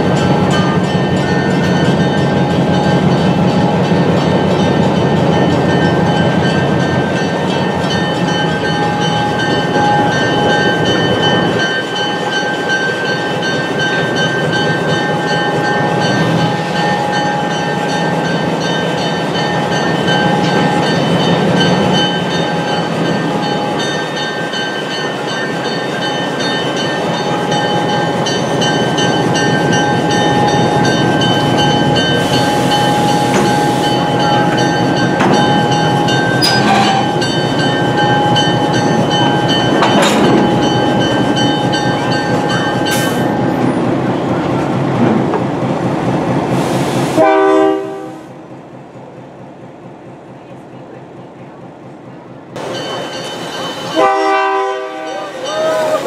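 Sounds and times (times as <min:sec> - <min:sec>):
train rumbling along track: 0:00.0 - 0:56.0
wheels clicking over rail joints: 0:39.1 - 0:43.2.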